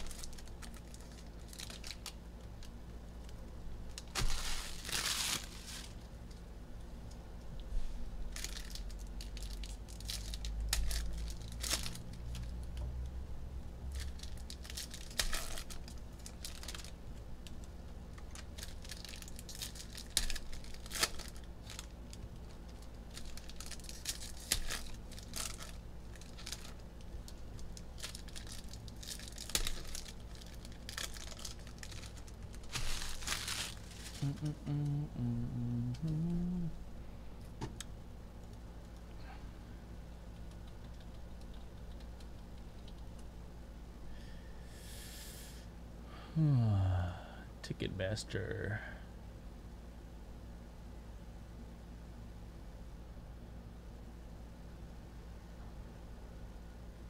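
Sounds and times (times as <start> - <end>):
foil wrappers crackling: 0.0 - 6.4, 8.2 - 12.5, 13.9 - 34.6
low steady hum: 0.0 - 57.0.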